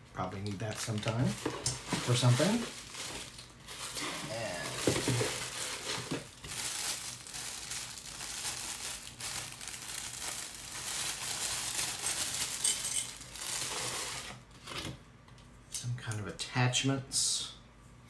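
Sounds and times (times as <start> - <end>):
plastic bag crinkling: 0.4 - 14.4.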